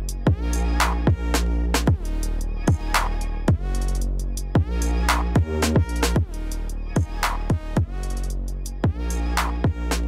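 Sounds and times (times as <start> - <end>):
sustained bass line: 0.0 - 10.0
deep kick drums: 4.6 - 4.8, 7.0 - 8.0, 8.8 - 9.1.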